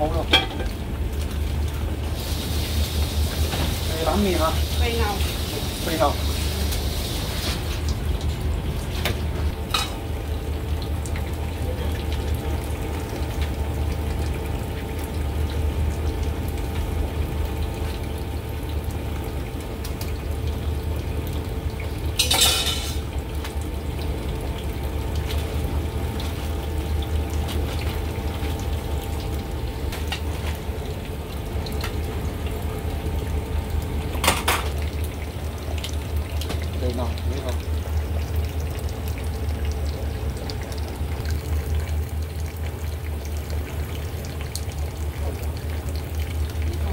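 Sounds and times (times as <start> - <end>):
kitchen low rumble: 0.0 - 46.9
metal utensils and bowls clinking: 22.2 - 23.0.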